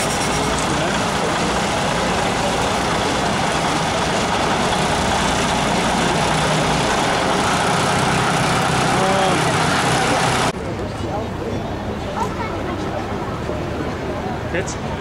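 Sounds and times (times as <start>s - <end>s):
diesel bus engine running: 0.0s - 15.0s.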